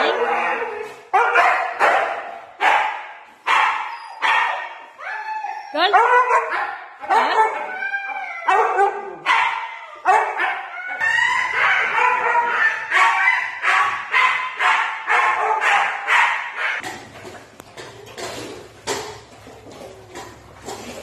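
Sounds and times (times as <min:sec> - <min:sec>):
dog barking and yowling: 0:00.0 - 0:16.8.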